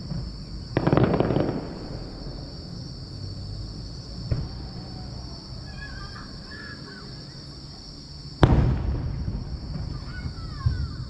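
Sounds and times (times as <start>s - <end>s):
firework boom echoing: 0.0s - 2.7s, 8.4s - 10.8s.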